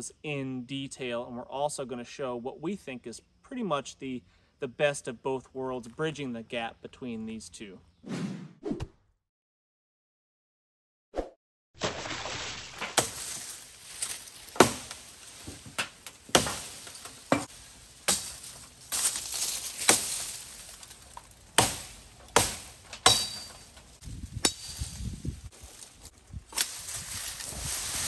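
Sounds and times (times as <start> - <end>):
blade chopping wood: 11.8 - 23.7
leaves and twigs rustling: 11.8 - 28.0.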